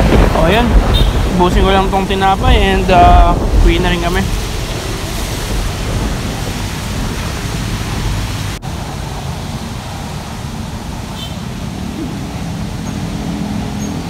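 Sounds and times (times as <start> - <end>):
steady rushing noise: 0.0 - 14.0.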